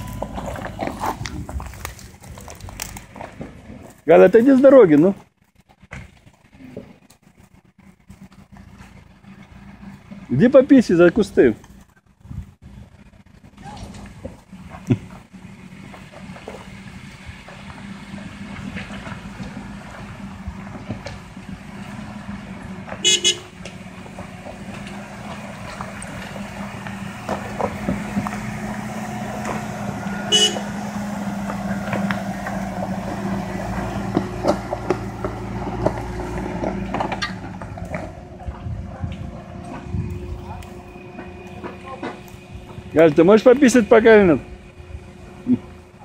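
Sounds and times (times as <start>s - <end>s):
suv engines climbing: 0.0s - 46.0s
car horn toots: 23.0s - 23.6s, 30.1s - 31.0s.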